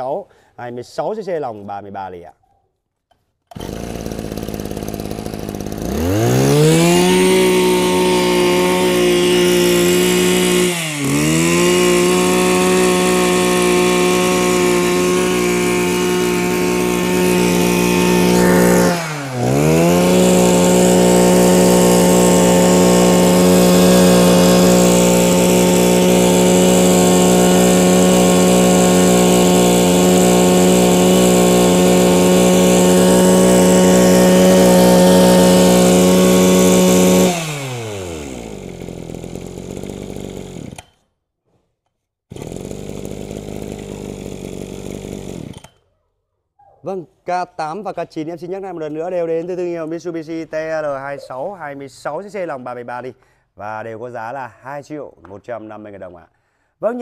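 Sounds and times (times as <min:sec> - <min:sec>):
brush cutter engine buzzing: 0:03.5 - 0:41.0, 0:42.3 - 0:45.8.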